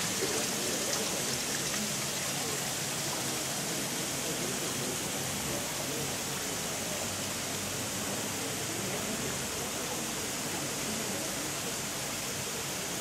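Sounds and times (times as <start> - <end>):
water falling onto wet paving: 0.0 - 3.3
water spraying from sprinklers: 0.0 - 13.0.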